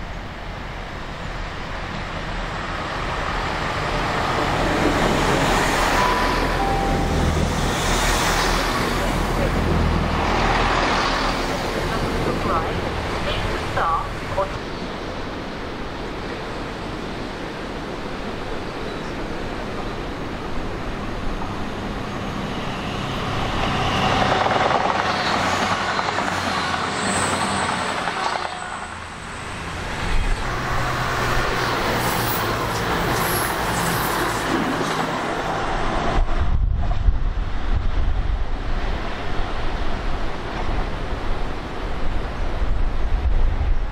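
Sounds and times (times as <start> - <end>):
train passing: 0.0 - 43.9.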